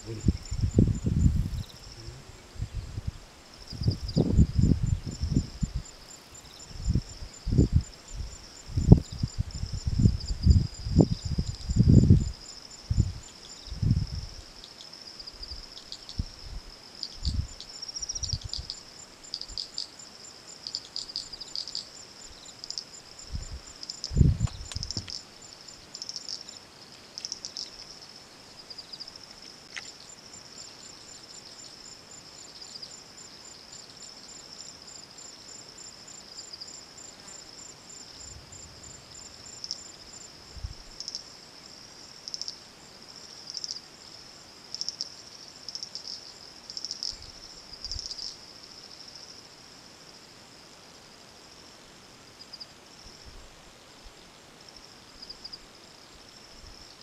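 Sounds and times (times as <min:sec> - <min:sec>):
insect chorus shrilling: 0:00.0 - 0:03.0, 0:03.6 - 0:42.6, 0:43.2 - 0:49.4.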